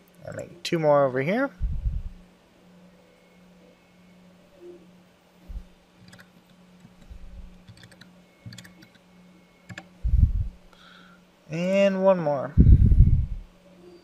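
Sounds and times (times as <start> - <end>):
faint steady hum: 0.0 - 14.0
keyboard keystrokes: 6.0 - 7.0, 7.6 - 9.0, 9.7 - 9.9.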